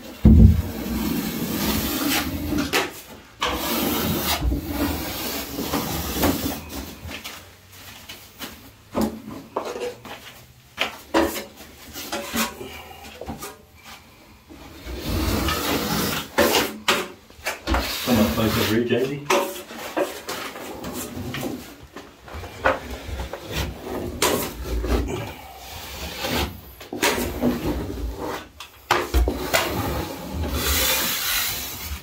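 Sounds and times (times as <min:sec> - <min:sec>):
tools scraping plasterboard: 0:00.0 - 0:07.3, 0:09.0 - 0:32.0.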